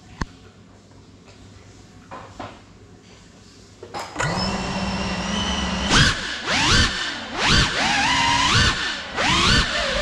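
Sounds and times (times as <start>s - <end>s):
drone motors whining: 4.2s - 10.0s.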